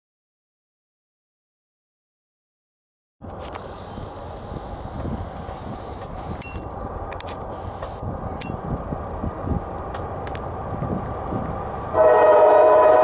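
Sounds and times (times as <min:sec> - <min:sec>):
diesel freight train rumble: 0:03.2 - 0:13.0
outdoor noise: 0:03.2 - 0:13.0.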